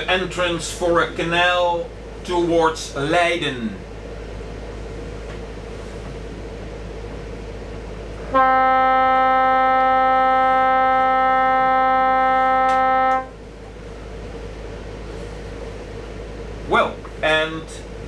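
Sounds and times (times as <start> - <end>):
foghorn blast: 8.2 - 13.4.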